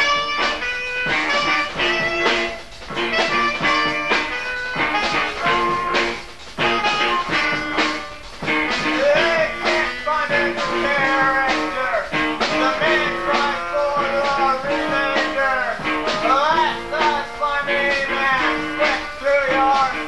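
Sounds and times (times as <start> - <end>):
guitar: 0.0 - 20.0
live rock band: 0.0 - 20.0
person singing: 8.8 - 20.0.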